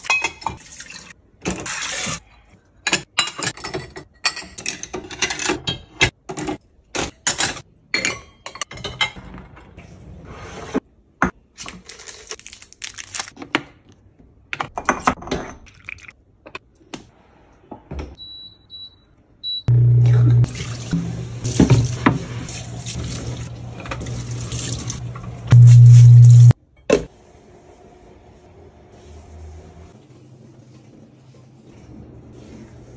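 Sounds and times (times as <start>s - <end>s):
loud low hum: 25.5s - 26.6s.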